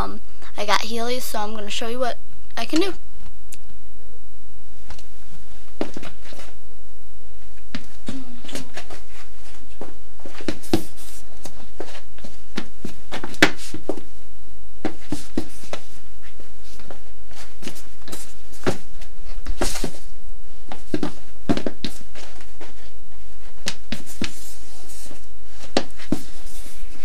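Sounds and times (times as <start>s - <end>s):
steady electrical hum: 0.0s - 27.0s
shoes knocking on hard floor: 5.8s - 6.4s, 11.8s - 14.0s, 20.7s - 22.4s, 25.7s - 26.3s.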